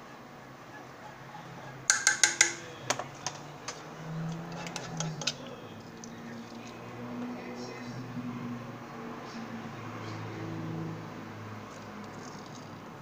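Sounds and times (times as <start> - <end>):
sharp kitchen clicks and taps: 1.9 - 3.8.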